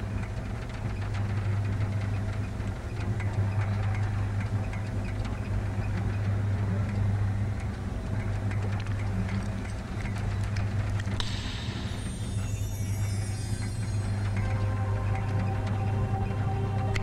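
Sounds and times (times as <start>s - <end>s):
low mechanical hum: 0.0s - 17.0s
faint ticks: 0.1s - 11.6s.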